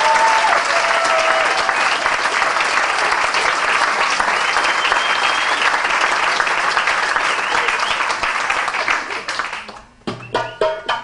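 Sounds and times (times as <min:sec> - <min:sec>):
audience applauding: 0:00.0 - 0:09.9
faint calls or whistles: 0:04.7 - 0:05.7.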